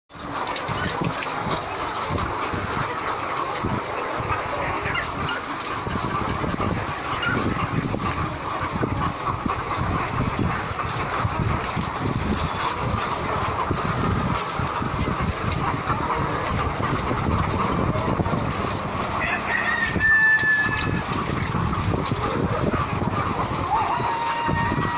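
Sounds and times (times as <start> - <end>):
hens clucking and calling: 0.1 - 24.9.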